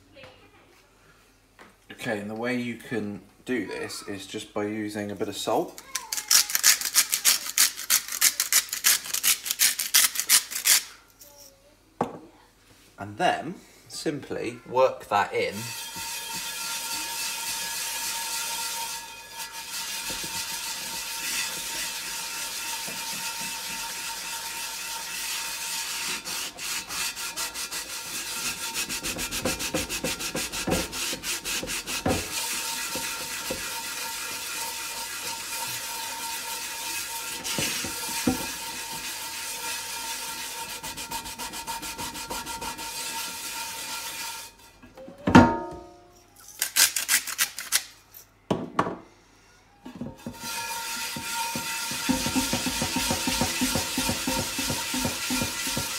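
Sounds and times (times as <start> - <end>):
cloth scrubbing salt in skillet: 15.5 - 44.6, 50.2 - 55.9.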